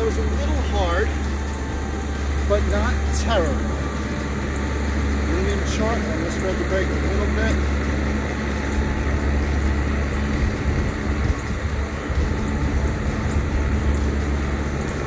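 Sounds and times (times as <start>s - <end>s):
faint steady hum: 0.0s - 15.0s
low rumble: 0.0s - 15.0s.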